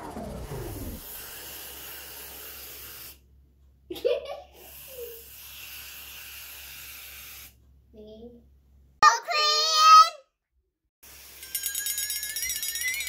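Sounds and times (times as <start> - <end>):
aerosol can hissing: 1.0 - 3.2, 4.6 - 7.5.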